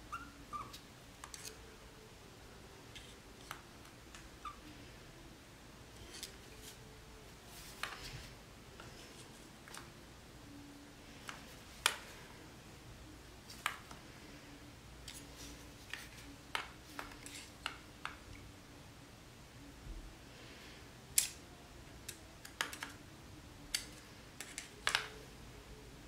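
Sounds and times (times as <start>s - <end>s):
screwdriver metallic clicks and scrapes: 1.2s - 1.6s.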